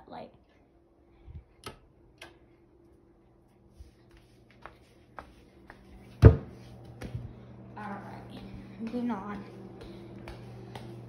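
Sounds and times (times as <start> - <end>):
loud thump: 6.2 - 6.5.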